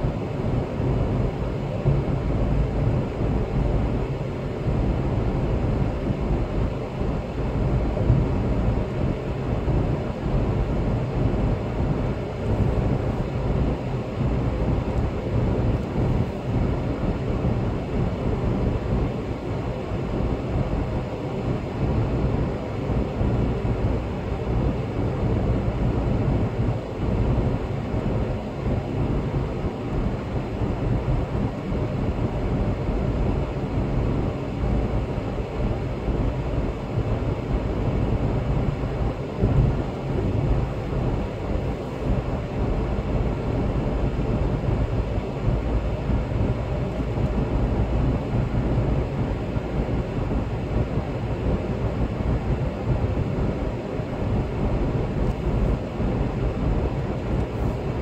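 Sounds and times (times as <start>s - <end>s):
faint engine hum: 0.0s - 58.0s.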